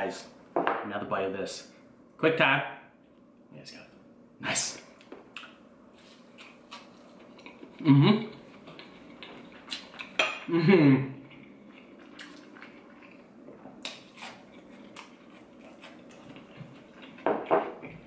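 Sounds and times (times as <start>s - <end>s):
man humming with enjoyment: 7.8s - 8.4s, 10.5s - 11.2s.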